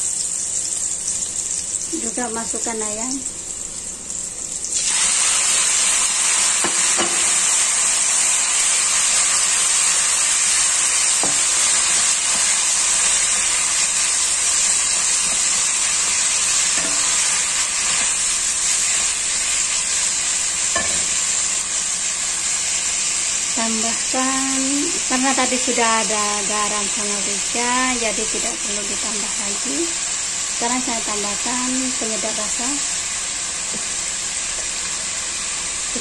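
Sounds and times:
chicken sizzling in hot oil: 0.0 - 36.0.

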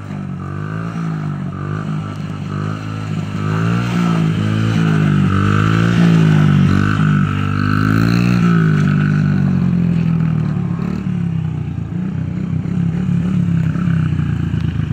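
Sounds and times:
small motorbike engine revving: 0.0 - 11.3.

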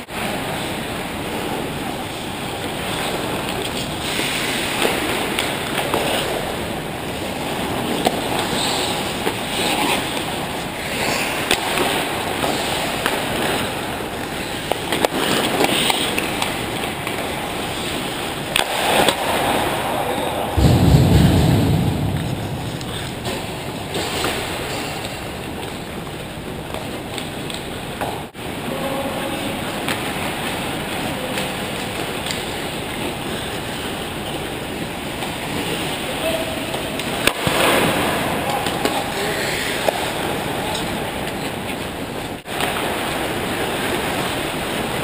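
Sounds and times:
skates scraping ice: 2.1 - 20.6
hockey sticks or puck clacking: 2.8 - 6.6, 7.8 - 13.8, 14.6 - 19.4, 36.7 - 43.1
heavy low rumble: 20.4 - 25.5.

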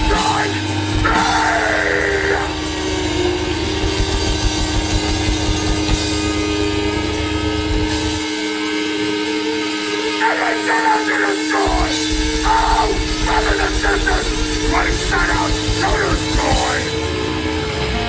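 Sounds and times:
distorted electric guitar chord: 0.0 - 18.0
guitar feedback ringing: 0.6 - 18.0
low bass rumble: 0.7 - 8.3, 11.7 - 17.7.

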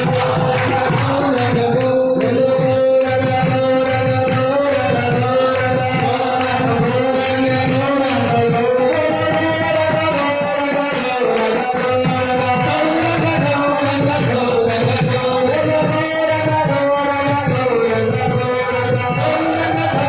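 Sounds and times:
drum beat: 0.0 - 20.0
group singing: 0.0 - 20.0
jingling percussion: 0.0 - 20.0.

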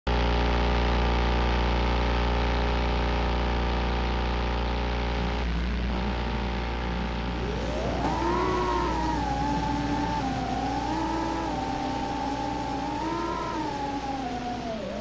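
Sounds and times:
drone motors idling: 5.0 - 15.0.

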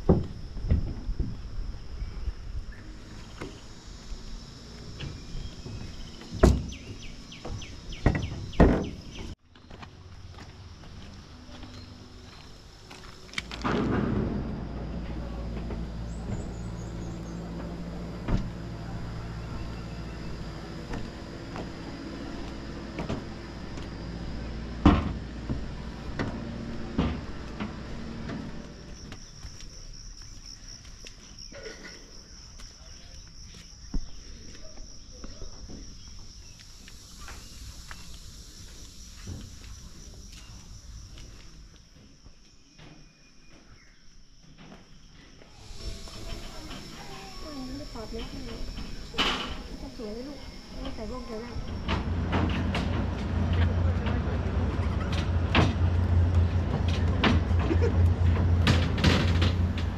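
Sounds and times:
insects buzzing: 0.0 - 59.9
wheels clacking on rail joints: 4.9 - 29.8, 45.6 - 59.9
footsteps on wooden planks: 5.0 - 13.9
steady high whine: 10.0 - 29.2, 45.4 - 59.9
train wheels rumbling on track: 10.8 - 29.3, 45.5 - 59.9.

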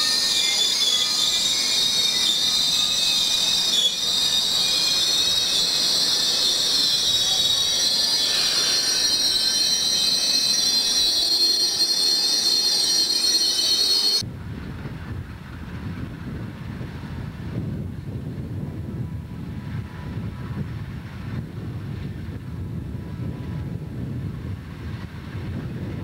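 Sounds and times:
train wheels squealing: 0.0 - 14.2.

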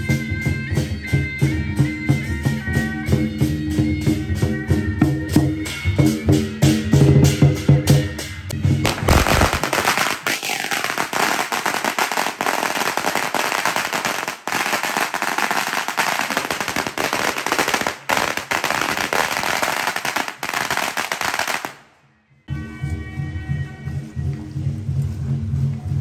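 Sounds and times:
firecrackers crackling: 8.8 - 21.9.

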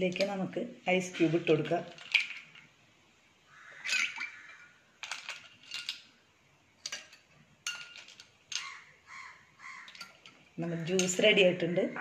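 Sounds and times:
ice cubes clinking in glass: 1.9 - 2.6, 5.0 - 6.1, 6.8 - 8.8
ice plopping into liquid: 3.8 - 6.0.

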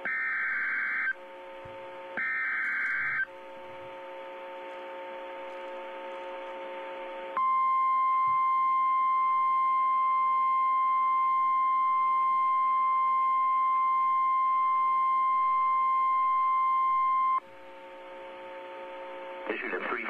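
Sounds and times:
steady alarm tone: 0.0 - 6.0
faint receiver hum: 0.0 - 20.0.

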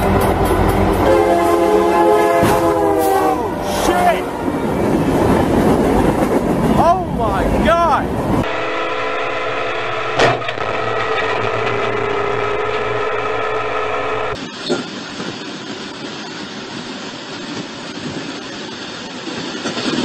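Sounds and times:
locomotive rumbling along track: 0.0 - 20.0
train horn: 0.8 - 4.3, 8.4 - 14.4.

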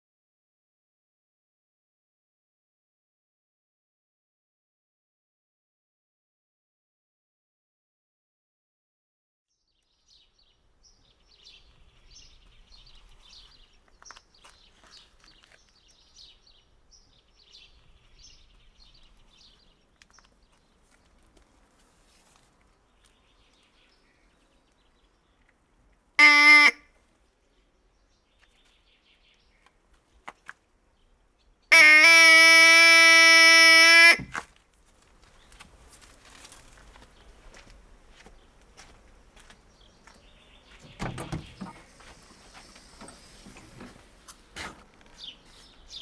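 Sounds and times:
duck call honking: 26.2 - 26.8, 31.7 - 34.4.

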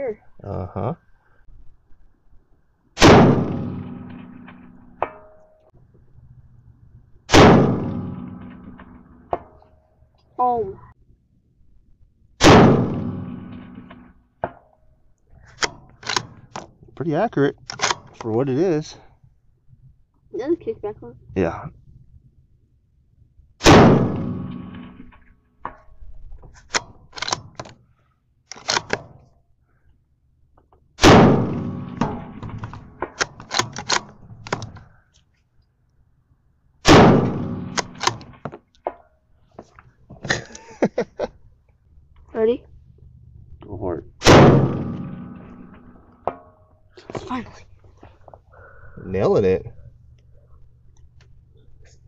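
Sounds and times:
rifle shots echoing: 3.0 - 5.0, 7.3 - 9.3, 12.4 - 14.1, 23.6 - 25.1, 31.0 - 34.1, 36.8 - 38.4, 44.2 - 46.4
rifle bolt clicking: 15.5 - 16.7, 17.6 - 18.3, 26.6 - 27.8, 28.5 - 29.1, 32.6 - 34.8, 37.7 - 38.4
bullet pinging steel target: 31.0 - 33.2, 44.2 - 46.7
faint ring of steel target: 31.3 - 32.6.

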